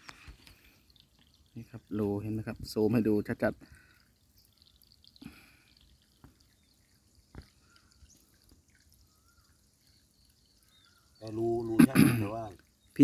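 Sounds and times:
water drips into ditch: 0.0s - 13.0s.

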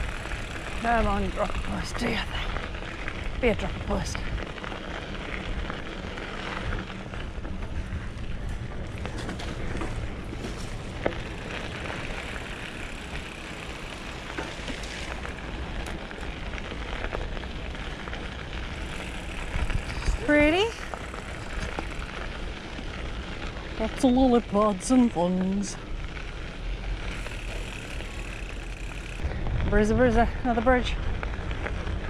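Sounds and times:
wind rumble on microphone: 0.0s - 23.9s, 26.7s - 32.0s
tyres crunching on gravel: 0.0s - 29.5s
bike clicks and rattles: 0.0s - 32.0s.

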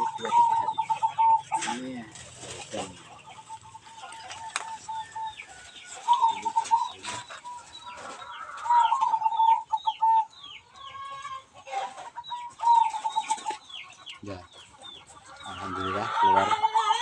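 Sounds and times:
high rapid bird chirps: 0.0s - 2.0s, 4.9s - 10.6s
doves cooing: 0.0s - 17.0s.

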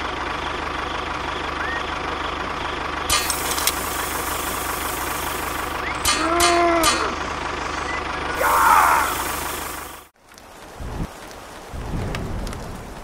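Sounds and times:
tractor engine running: 0.0s - 10.2s
sharp clicks: 3.1s - 8.1s
short rising and falling call: 3.1s - 10.1s.

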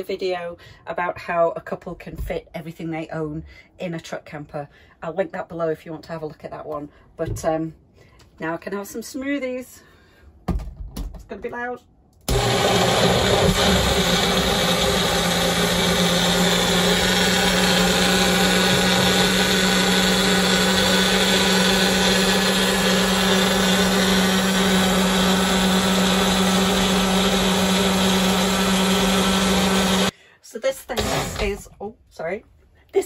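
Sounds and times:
blender motor whine: 12.3s - 30.1s, 30.9s - 31.6s.

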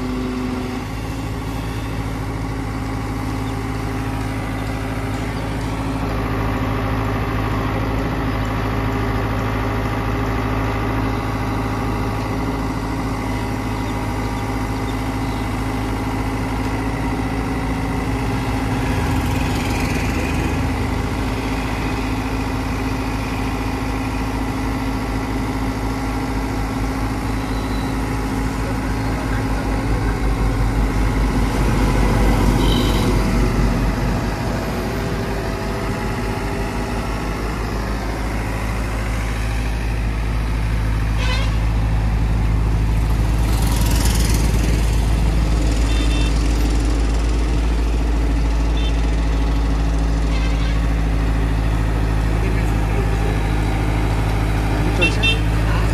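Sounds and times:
excavator diesel engine running: 0.0s - 55.9s.

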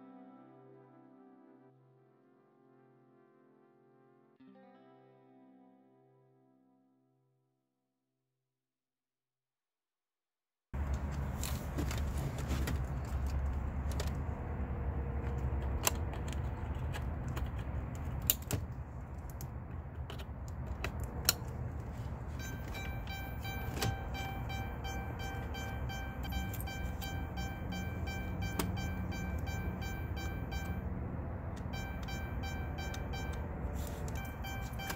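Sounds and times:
low hum: 10.8s - 34.9s
rapidly repeating electronic tone: 22.4s - 30.9s, 31.6s - 34.9s.

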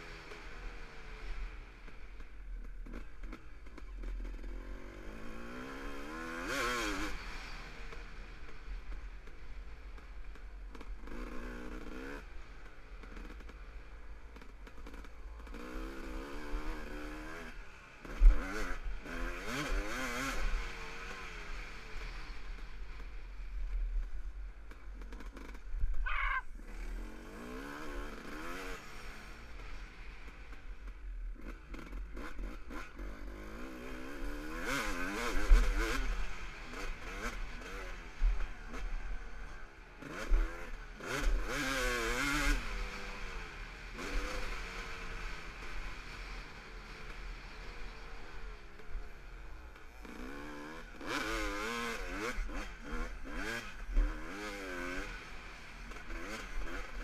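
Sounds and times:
dirt bike engine revving: 14.4s - 23.1s, 24.2s - 30.5s, 31.3s - 49.2s, 49.8s - 57.0s.

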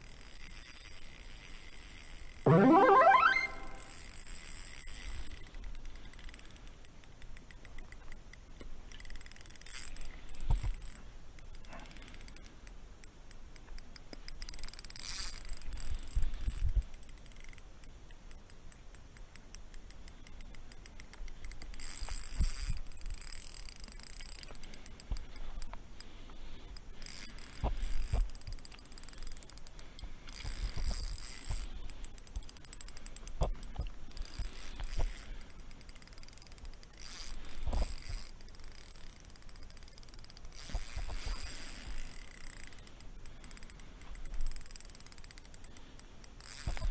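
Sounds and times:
fishing reel clicking: 0.0s - 2.4s, 8.9s - 13.4s, 14.0s - 17.7s, 18.3s - 25.6s, 26.7s - 33.3s, 34.1s - 46.9s.

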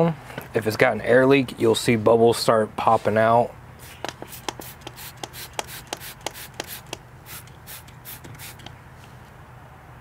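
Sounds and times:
spray bottle hissing sprays: 3.8s - 8.8s
spray trigger clicks: 3.8s - 8.8s.

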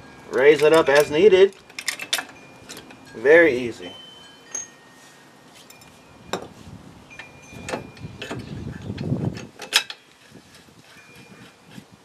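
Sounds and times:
sharp metallic clicks and knocks: 0.3s - 3.0s, 7.2s - 10.0s.

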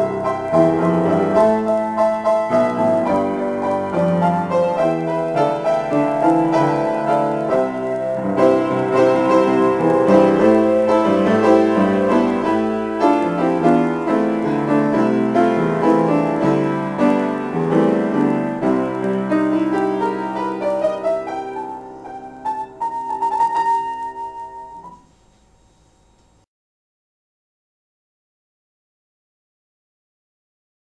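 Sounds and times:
grand piano improvisation: 0.0s - 25.0s.

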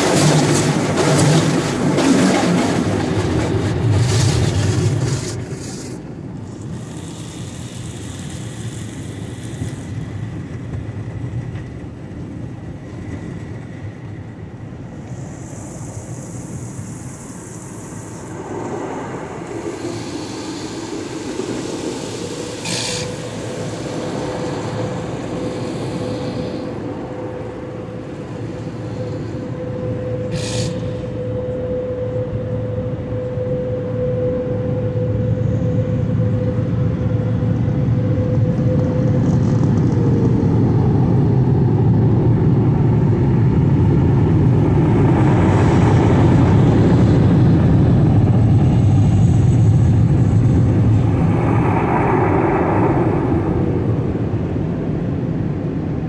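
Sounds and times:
car wash water and machinery rumble: 0.0s - 56.0s
wash equipment whine: 0.0s - 56.0s
hissing spray spurts: 6.7s - 10.0s.

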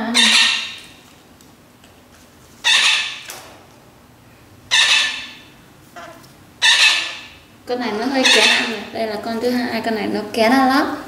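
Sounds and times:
parakeets squawking: 0.0s - 1.0s, 2.6s - 3.3s, 4.7s - 9.2s.

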